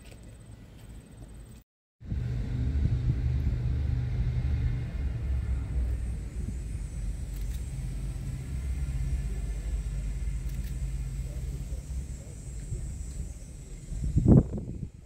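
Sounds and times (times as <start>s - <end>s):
engine idling rumble: 0.0s - 15.0s.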